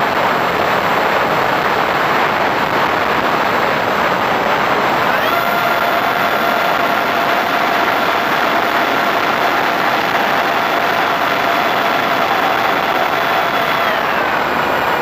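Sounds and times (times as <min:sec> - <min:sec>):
wind rushing over camera: 0:00.0 - 0:15.0
model plane motor whine: 0:04.9 - 0:15.0.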